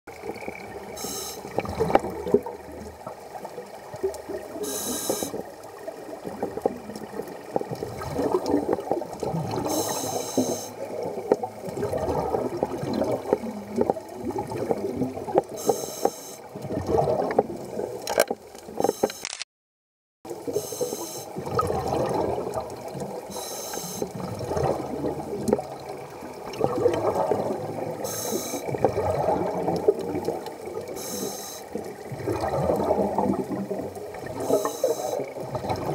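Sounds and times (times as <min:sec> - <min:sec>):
exhaled air bubbling underwater: 0:00.1 - 0:19.0, 0:20.3 - 0:35.9
regulator hiss on inhale: 0:01.0 - 0:01.5, 0:04.6 - 0:05.4, 0:09.7 - 0:10.8, 0:15.6 - 0:16.5, 0:20.5 - 0:21.3, 0:23.3 - 0:24.1, 0:28.0 - 0:28.7, 0:31.0 - 0:31.8, 0:34.4 - 0:35.2.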